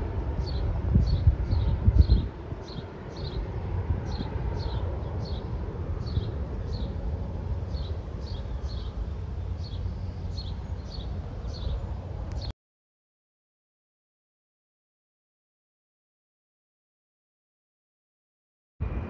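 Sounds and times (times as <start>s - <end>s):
jet engines rumbling: 0.0s - 12.5s
small bird chirping: 7.7s - 12.5s.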